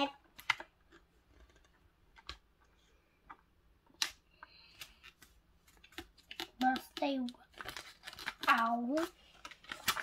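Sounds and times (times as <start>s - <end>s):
fingers tapping paper pages: 3.2s - 10.0s.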